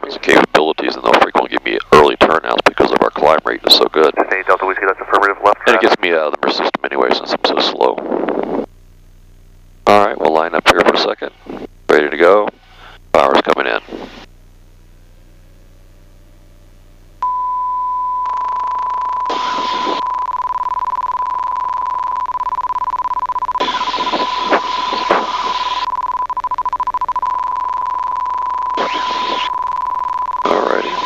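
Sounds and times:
hissy radio crackle: 0:00.0 - 0:08.7, 0:09.9 - 0:14.3, 0:18.2 - 0:20.0, 0:23.6 - 0:25.9, 0:27.6 - 0:29.5, 0:30.4 - 0:31.0
steady high electronic beep: 0:17.2 - 0:31.0.

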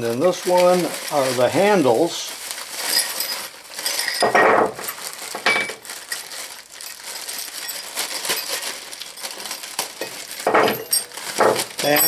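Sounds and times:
plastic and bubble wrap crinkling: 0:00.0 - 0:12.0
metal parts clinking: 0:02.9 - 0:06.3, 0:06.9 - 0:12.0.

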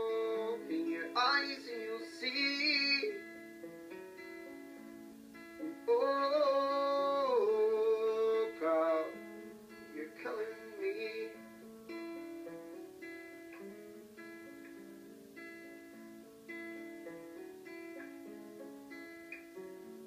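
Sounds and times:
man singing: 0:00.0 - 0:03.3, 0:05.6 - 0:11.4
acoustic guitar: 0:00.0 - 0:20.0.

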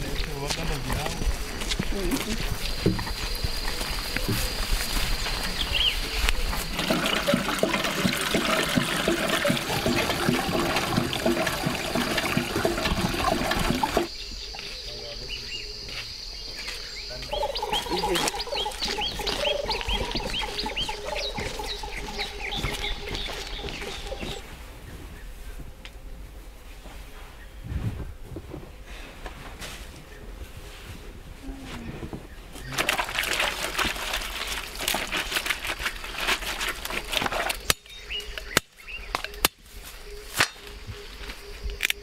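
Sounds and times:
rustling and shuffling: 0:00.0 - 0:07.3, 0:18.1 - 0:37.7.

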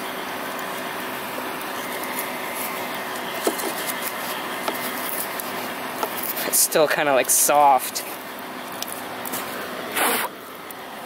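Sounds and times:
furnace blower rushing: 0:09.0 - 0:11.0.

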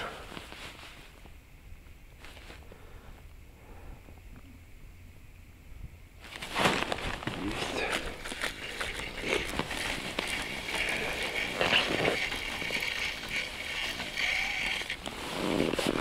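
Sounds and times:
winter clothing rustling: 0:00.0 - 0:01.4, 0:02.1 - 0:03.0, 0:06.2 - 0:16.0
fishing reel whirring and clicking: 0:08.5 - 0:15.1.

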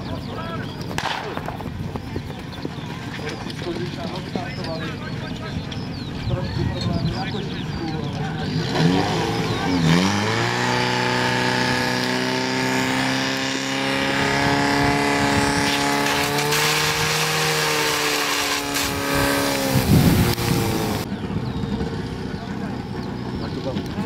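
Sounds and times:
pump engine droning at high revs: 0:08.3 - 0:21.1.

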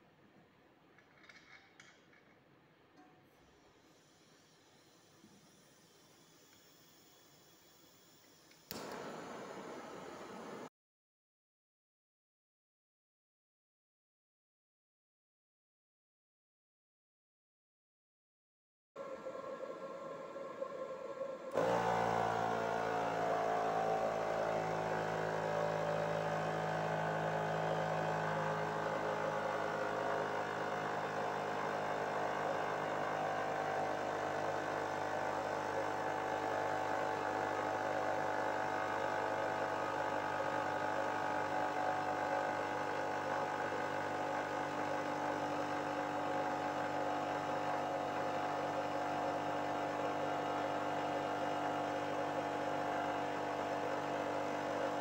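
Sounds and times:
generator cooling system whirring hum: 0:19.0 - 0:55.0.

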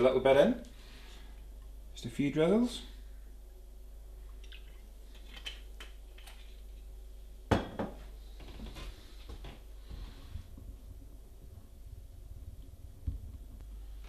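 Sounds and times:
bottle knocking as set down: 0:07.5 - 0:08.0.

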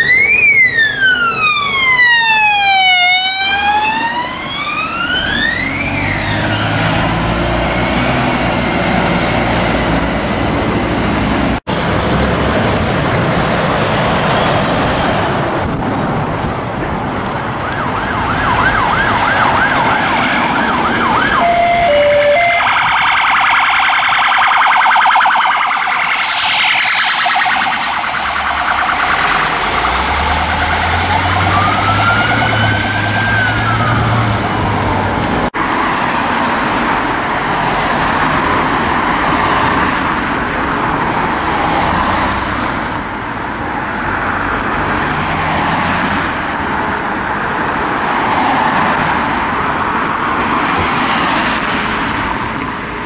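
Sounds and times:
police sirens warbling: 0:00.0 - 0:07.5, 0:17.4 - 0:36.3
rushing background noise: 0:06.4 - 0:53.0.

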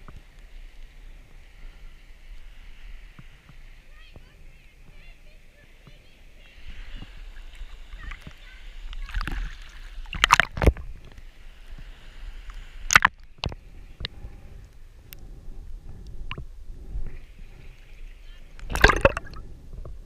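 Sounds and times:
low rumble of moving water: 0:00.0 - 0:20.0
seawater sloshing and splashing: 0:05.8 - 0:11.1, 0:11.8 - 0:13.7, 0:18.6 - 0:19.4
sharp splashes or knocks: 0:09.2 - 0:10.8, 0:12.9 - 0:13.6, 0:18.6 - 0:19.4.

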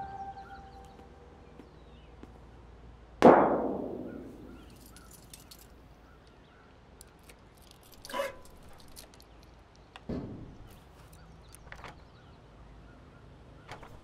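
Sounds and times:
loud ringing impact: 0:03.2 - 0:04.6.

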